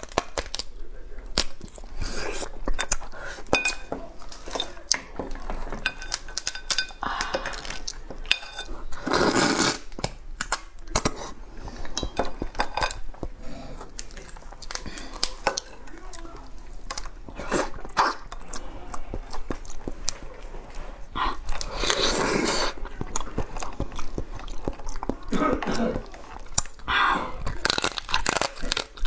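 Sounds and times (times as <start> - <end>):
crab shell crackling: 27.4 - 29.0.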